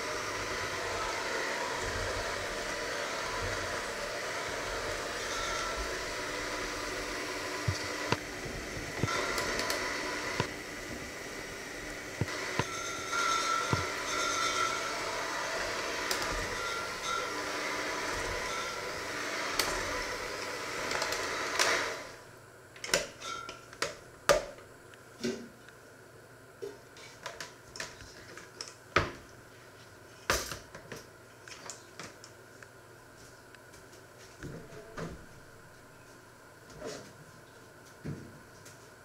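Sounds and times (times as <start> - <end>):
electric hand mixer running: 0.0 - 22.3
bowl and mixer clattering: 12.3 - 15.0.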